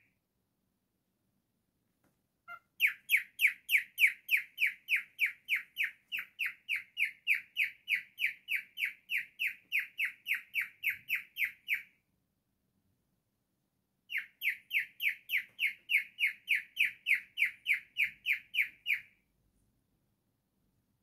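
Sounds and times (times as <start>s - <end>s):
cockatiel chirping: 2.4s - 12.0s, 14.1s - 19.2s.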